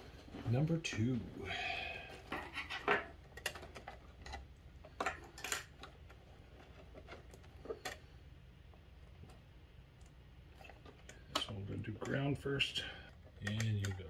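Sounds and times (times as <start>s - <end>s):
wires clicking and tapping: 12.9s - 14.0s.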